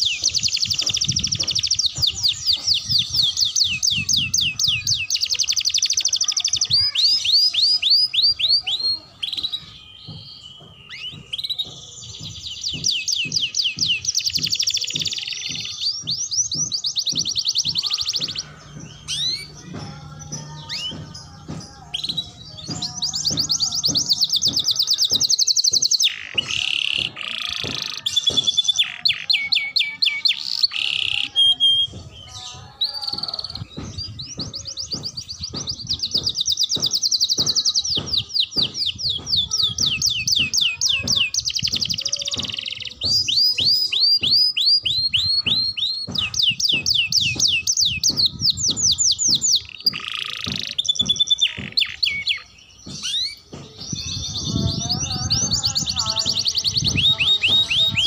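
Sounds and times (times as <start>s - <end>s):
canary trilling song: 0.0s - 58.0s.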